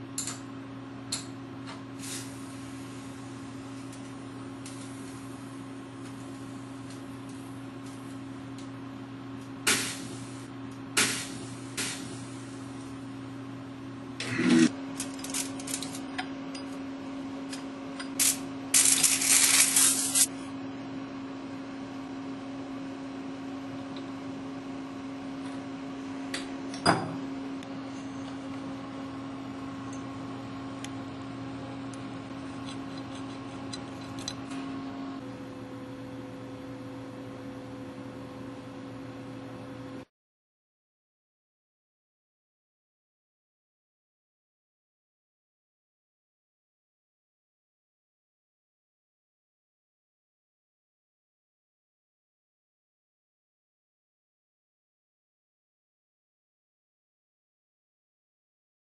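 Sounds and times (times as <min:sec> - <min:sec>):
electrical hum of lab equipment: 0:00.0 - 0:40.1
loud hissing rustle: 0:18.2 - 0:20.3.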